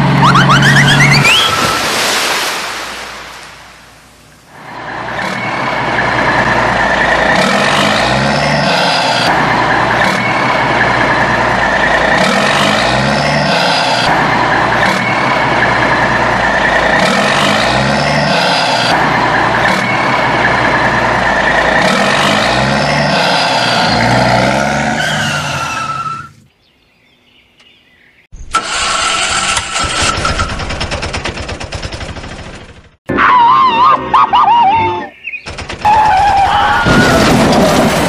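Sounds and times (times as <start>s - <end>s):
engine revving: 4.5s - 26.5s, 28.5s - 33.0s
rattling small engine: 28.6s - 33.0s.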